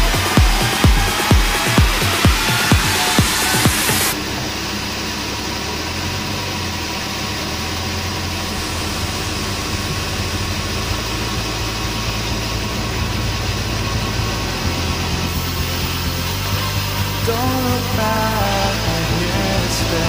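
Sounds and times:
sawmill saw running: 0.0 - 20.0.

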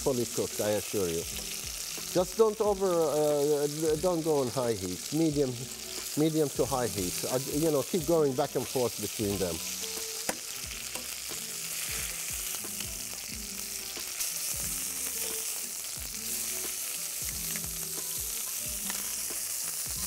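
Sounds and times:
chicken sizzling in a frying pan: 0.0 - 20.0
utensil moving food in pan: 4.2 - 20.0.

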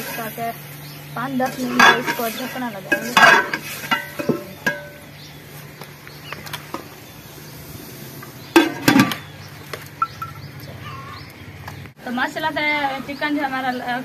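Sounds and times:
metal lid clanking on pot: 1.4 - 5.1, 8.6 - 9.2.

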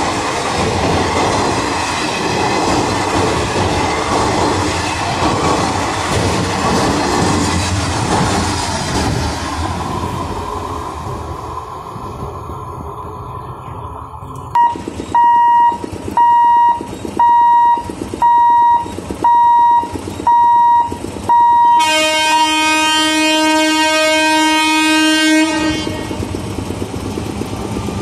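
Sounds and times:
train coaches rumbling past: 0.0 - 28.0
level crossing warning beeps: 14.5 - 21.8.

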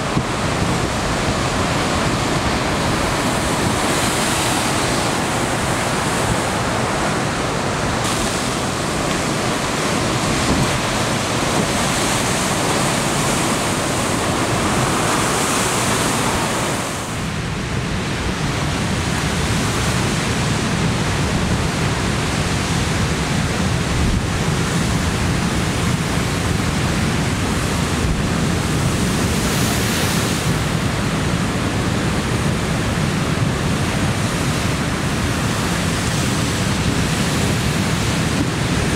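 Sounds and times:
surf breaking on rocks: 0.0 - 17.4.

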